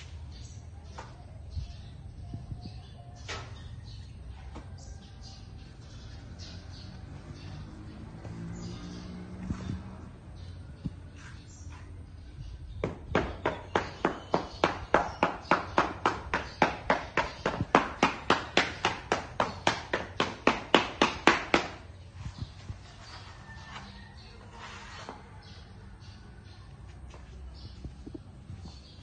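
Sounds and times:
trowel scraping sand mix: 24.5 - 25.2.

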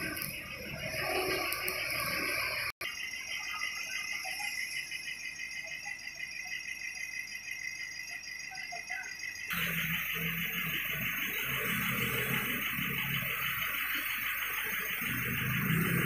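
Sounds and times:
engine idling: 9.5 - 16.0.

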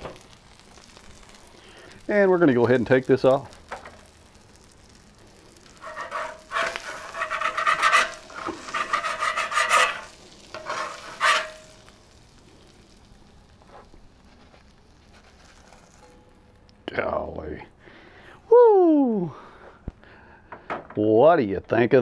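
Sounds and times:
metal spatula scraping griddle: 5.6 - 12.2, 13.6 - 16.2.

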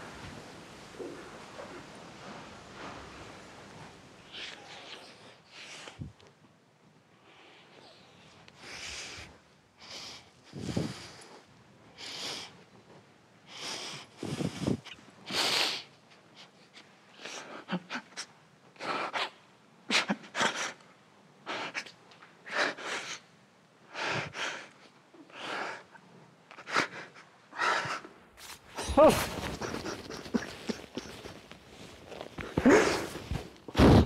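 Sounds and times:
man sniffing and sobbing: 26.6 - 34.0.

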